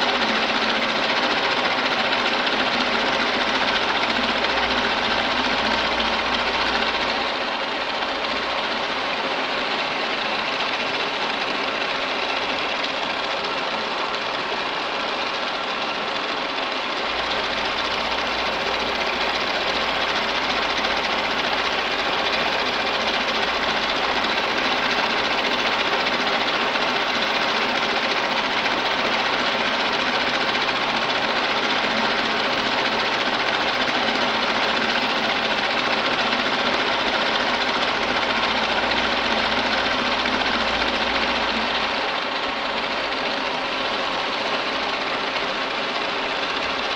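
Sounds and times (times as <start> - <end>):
milling machine cutting metal: 17.0 - 46.8.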